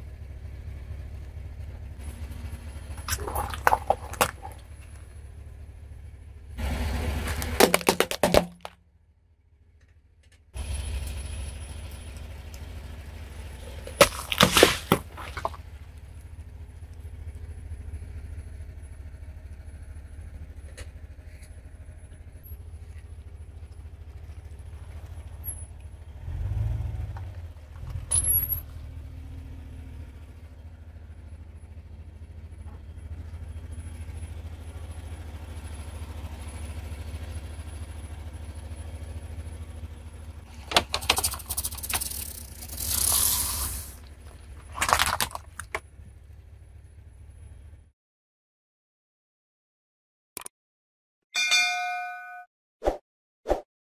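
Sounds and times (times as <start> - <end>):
car engine rumble: 0.0 - 47.9
tyre crushing watermelon: 3.0 - 4.7, 7.2 - 8.7, 13.6 - 15.7, 42.9 - 45.8
tyre crushing bottle and balloons: 3.0 - 4.8, 7.2 - 8.8, 13.6 - 15.7, 40.5 - 45.8
dull thump: 7.3 - 8.7.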